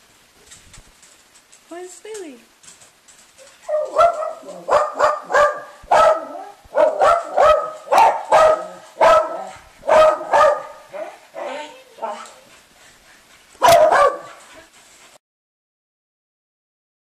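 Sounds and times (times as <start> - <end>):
small dog barking: 3.4 - 12.3, 13.6 - 14.4.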